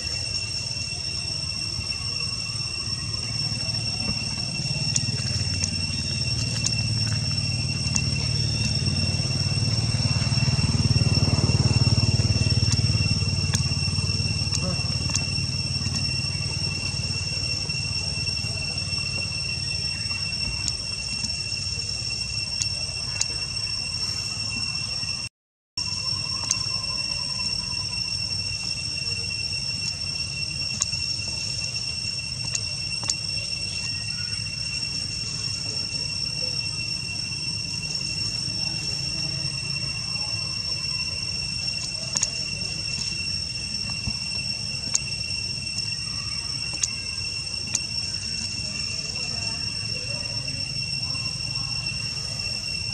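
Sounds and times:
high-pitched insect drone: 0.0 - 52.9
high-pitched whine: 0.0 - 52.9
engine running: 3.2 - 45.1
faint clicks: 30.7 - 31.6, 41.8 - 43.2, 46.7 - 47.0.

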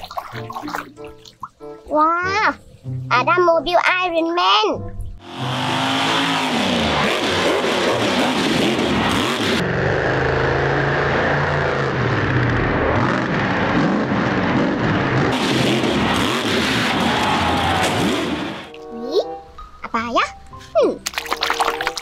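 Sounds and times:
monster truck engine revving: 5.2 - 18.7.

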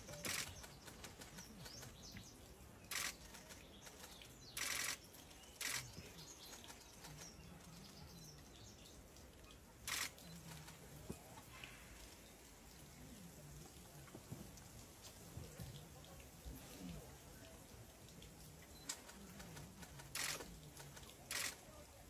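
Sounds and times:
distant murmur: 0.0 - 14.1, 16.9 - 22.0
short hissing bursts: 4.6 - 5.0.

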